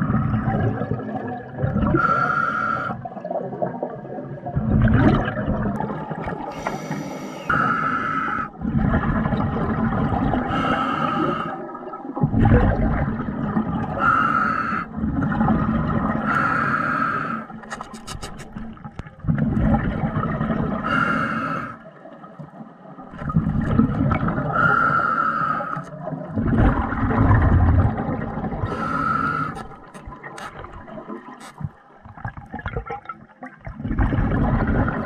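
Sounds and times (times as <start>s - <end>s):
hissing inhalation: 6.5s - 8.5s, 14.0s - 14.9s, 16.3s - 17.5s, 24.5s - 25.9s, 28.7s - 29.7s
bubbling exhalation: 26.2s - 31.6s.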